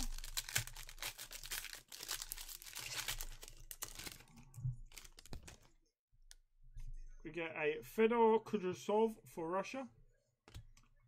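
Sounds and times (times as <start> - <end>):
foil wrapper tearing and crinkling: 0.0 - 5.7.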